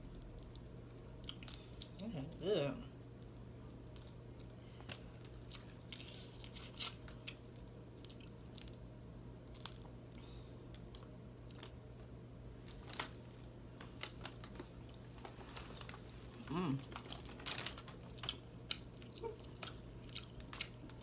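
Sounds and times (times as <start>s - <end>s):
low steady hum: 0.0s - 21.0s
chewing: 16.8s - 21.0s.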